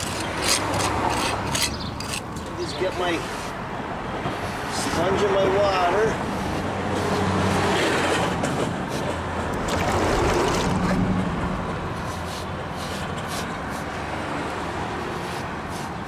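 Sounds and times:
wet sponge scrubbing stone: 0:15.1 - 0:16.0.

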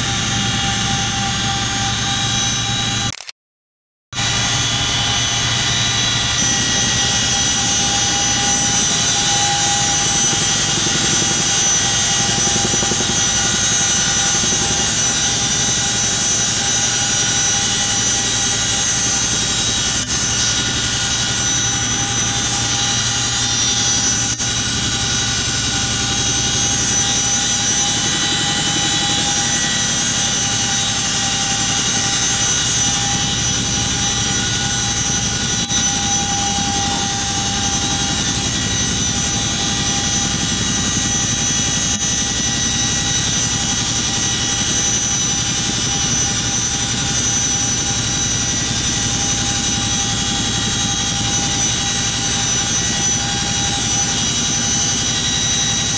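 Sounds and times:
high-pitched turbine whines: 0:00.0 - 0:03.1, 0:04.2 - 0:55.9
helicopter cabin drone: 0:00.0 - 0:03.2, 0:04.2 - 0:55.9.

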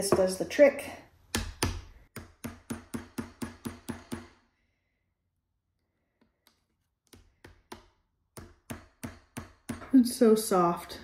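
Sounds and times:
hammer striking nail: 0:01.3 - 0:04.4, 0:07.1 - 0:09.9.

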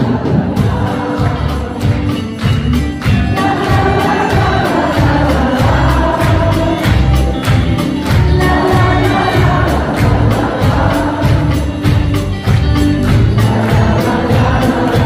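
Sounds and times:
backing vocal: 0:00.0 - 0:12.1, 0:13.0 - 0:15.0
live pop band playing: 0:00.0 - 0:15.0
female lead vocal: 0:03.1 - 0:07.4, 0:08.1 - 0:12.2.

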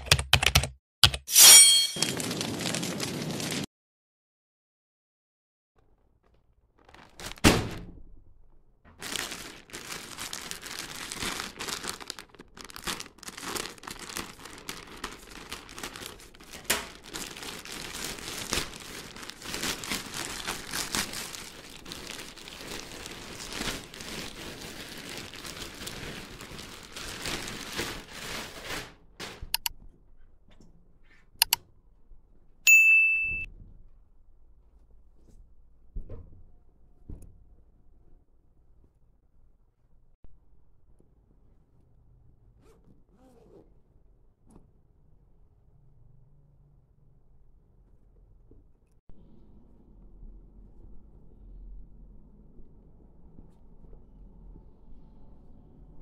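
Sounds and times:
plastic bag crinkling and tearing: 0:02.0 - 0:03.7, 0:06.8 - 0:07.4, 0:09.0 - 0:28.9
short bright ding: 0:32.7 - 0:33.5.

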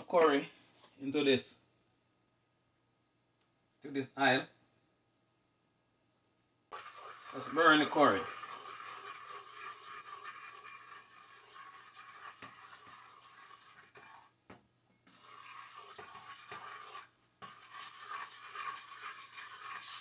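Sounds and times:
spices sizzling in hot oil: 0:18.1 - 0:20.0.

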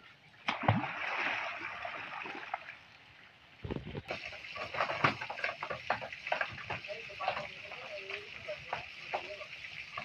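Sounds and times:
water splashing: 0:00.0 - 0:10.0
sharp knocks and clatter: 0:03.7 - 0:07.7.

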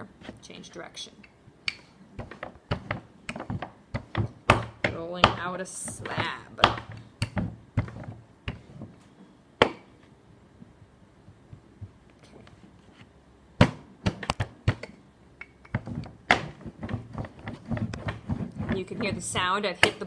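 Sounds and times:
rolling pin rolling clay: 0:00.0 - 0:00.8, 0:01.8 - 0:09.9, 0:13.6 - 0:20.0
rolling pin knocking wooden boards: 0:02.2 - 0:08.9, 0:15.7 - 0:20.0.

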